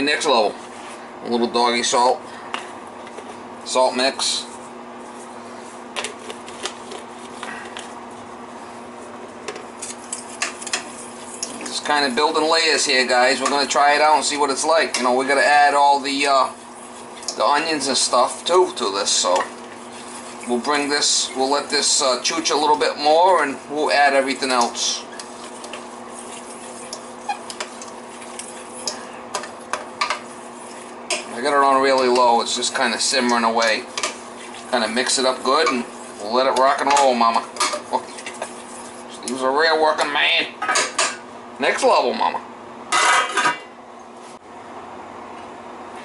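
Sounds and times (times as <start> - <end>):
steady low hum: 0.0 - 46.0
spatula stirring in pot: 4.5 - 40.1.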